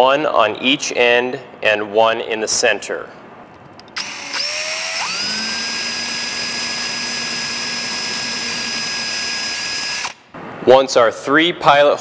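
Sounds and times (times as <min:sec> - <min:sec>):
power drill drilling into wood: 0:04.0 - 0:10.2.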